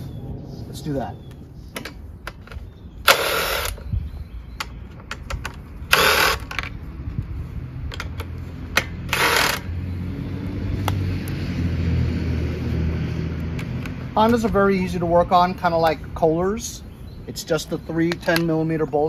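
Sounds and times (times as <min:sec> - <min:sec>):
power tool bursts: 0:03.0 - 0:03.8, 0:05.9 - 0:06.5, 0:09.1 - 0:09.7
small metal clicks and knocks: 0:07.9 - 0:08.9, 0:18.0 - 0:18.6.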